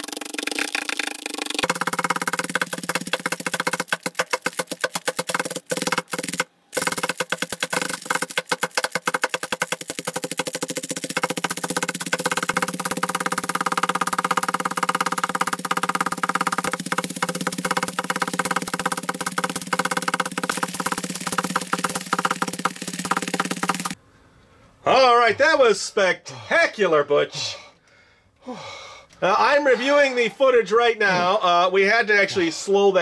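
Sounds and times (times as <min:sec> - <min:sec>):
bubble wrap popping: 0:00.0 - 0:24.0.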